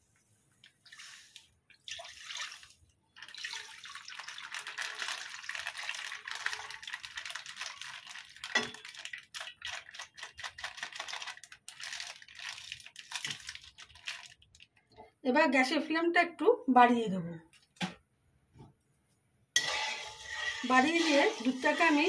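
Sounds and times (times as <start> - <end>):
milk dripping and spattering: 0.6 - 15.0
milk pouring into metal pan: 0.7 - 14.5.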